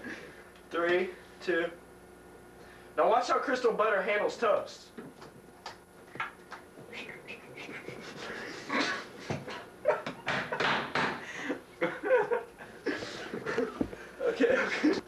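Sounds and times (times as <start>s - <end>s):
young man stifled laughter: 7.5s - 10.8s, 11.4s - 15.0s.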